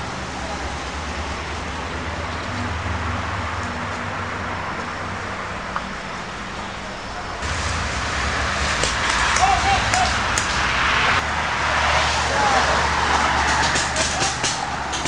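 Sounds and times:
rushing outdoor noise: 0:00.0 - 0:15.0
low hum: 0:07.4 - 0:11.8.

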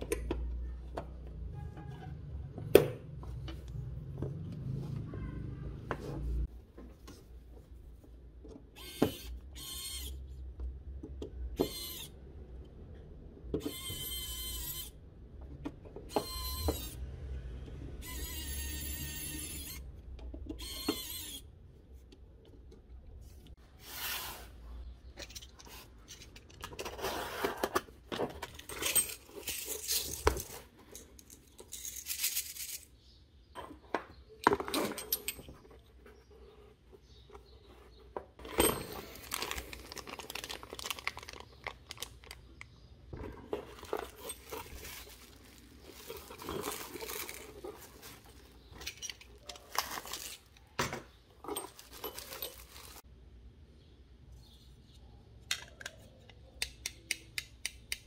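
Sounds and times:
small metal cartridges clinking: 0:28.4 - 0:33.0
bubble wrap crinkling: 0:39.0 - 0:42.5, 0:43.6 - 0:48.7, 0:49.3 - 0:50.6, 0:51.6 - 0:53.0.

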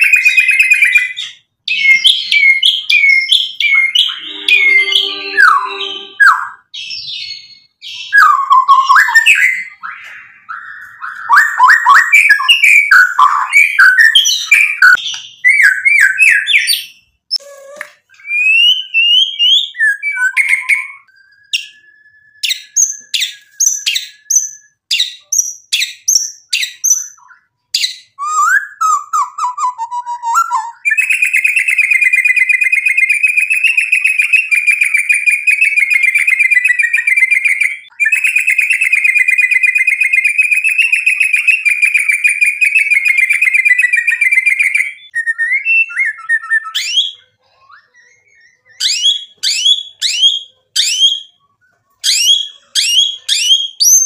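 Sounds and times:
bird whistling downward notes: 0:01.7 - 0:16.8, 0:18.2 - 0:24.8
bird fast trill: 0:01.8 - 0:07.5.

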